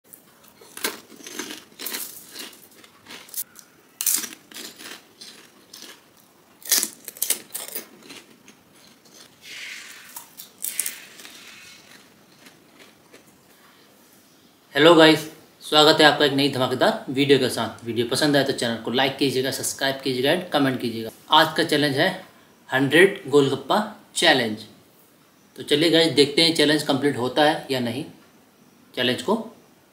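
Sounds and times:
crunchy bites: 0.4s - 13.3s
soft chewing: 10.1s - 13.8s.

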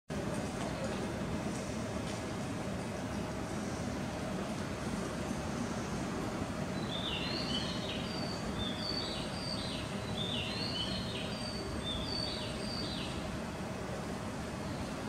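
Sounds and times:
station and train background hum: 0.1s - 15.0s.

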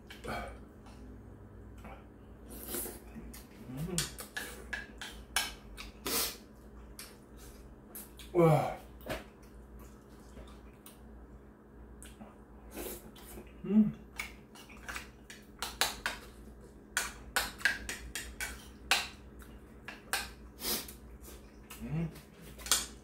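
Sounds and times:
person humming: 3.6s - 4.2s, 13.6s - 14.0s, 21.7s - 22.2s.

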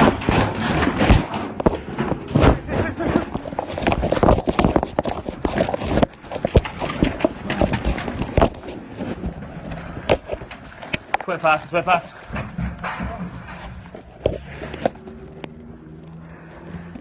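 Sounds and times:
camera handling knocks and rustles: 0.0s - 11.3s
gear clatter: 0.0s - 16.1s.

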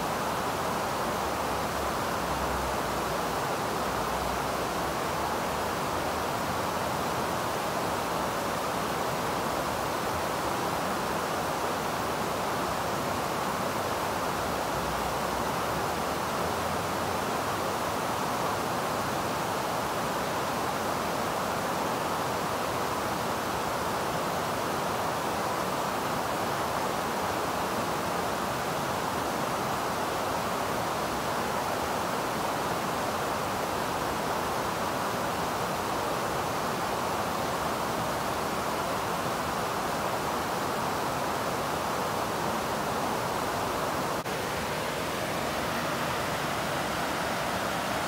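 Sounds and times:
river rushing over rocks: 0.0s - 48.0s.

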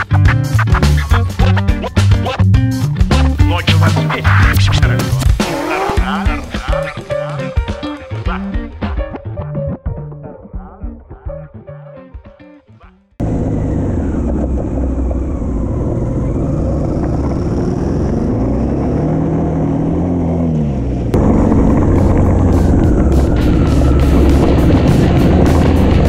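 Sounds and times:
motorcycle engine: 13.2s - 26.0s
wind noise: 21.1s - 26.0s.

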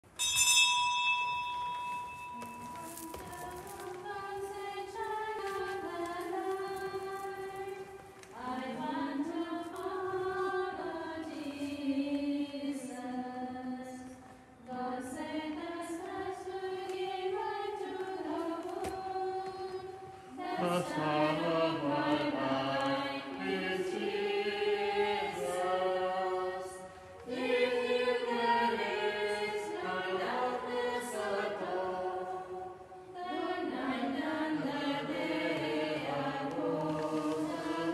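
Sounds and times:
women singing a hymn: 2.3s - 37.9s.

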